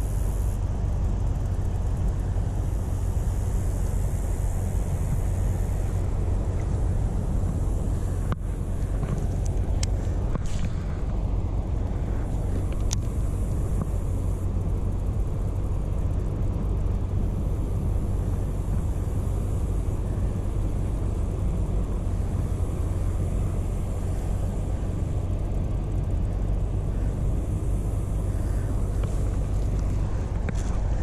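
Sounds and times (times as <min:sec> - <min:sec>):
wind buffeting microphone: 0:02.0 - 0:14.4.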